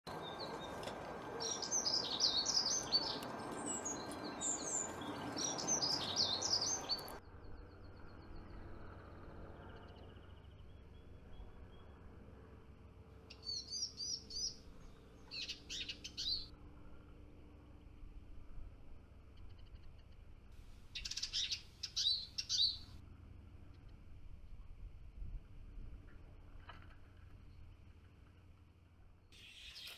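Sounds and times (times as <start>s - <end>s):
siskin calls: 0.1s - 7.2s, 13.3s - 14.6s, 15.2s - 16.5s, 20.9s - 23.0s, 29.4s - 29.9s
siskin twittering song: 0.1s - 8.6s, 13.3s - 16.5s, 20.9s - 23.0s, 29.4s - 29.9s
sharp bird chirps: 1.4s - 8.5s, 13.3s - 14.6s, 15.2s - 16.5s, 20.9s - 22.9s, 29.4s - 29.9s.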